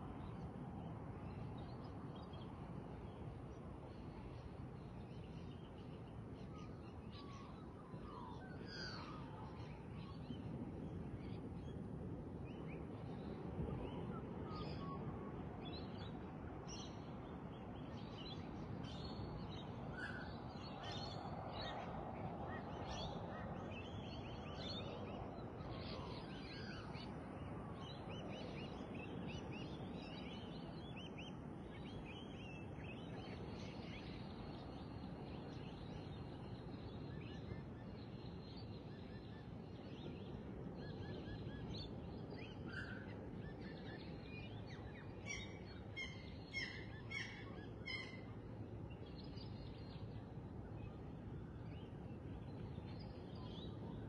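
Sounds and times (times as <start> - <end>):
low background noise: 0.0 - 54.0
wild birds calling: 45.3 - 48.4.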